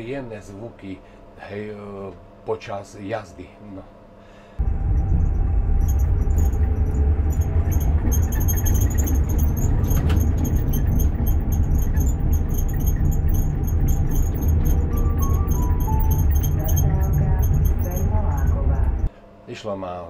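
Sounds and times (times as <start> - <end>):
cab doors rattling and squeaking: 4.6 - 19.1
tram running rumble: 4.6 - 19.1.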